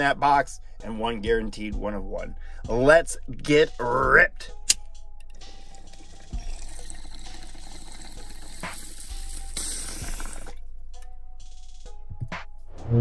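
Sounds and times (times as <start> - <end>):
steady rushing hiss: 5.5 - 10.6.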